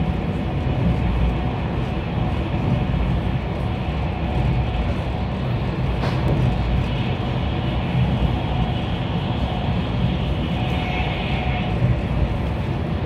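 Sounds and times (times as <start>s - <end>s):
train cabin rumble: 0.0s - 13.0s
hiss of wheels and air: 5.9s - 13.0s.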